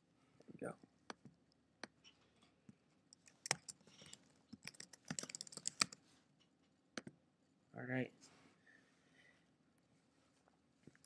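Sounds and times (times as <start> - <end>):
computer keyboard typing: 3.2 - 6.0.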